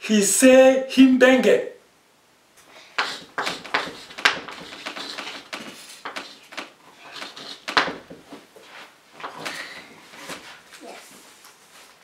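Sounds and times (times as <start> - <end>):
chalk tapping and scratching: 3.0 - 10.6.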